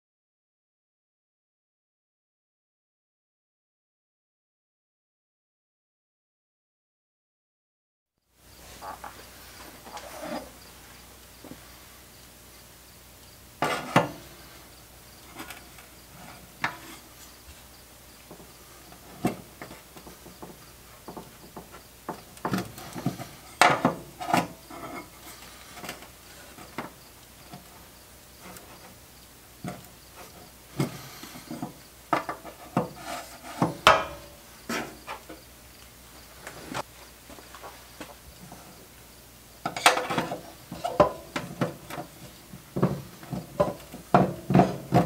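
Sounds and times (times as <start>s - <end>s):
metal tool clanking on metal stool: 30.8s - 35.1s, 39.6s - 42.0s, 42.8s - 45.0s.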